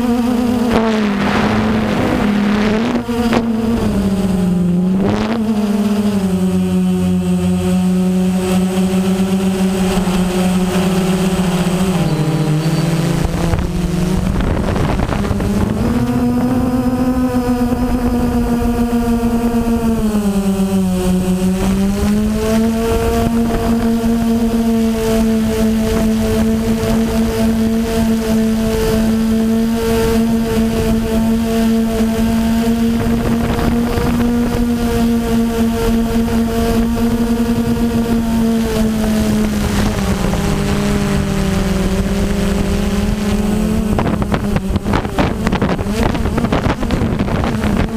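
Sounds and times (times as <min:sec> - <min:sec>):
drone motors humming: 0:00.0 - 0:47.9
wind noise on microphone: 0:00.0 - 0:47.9.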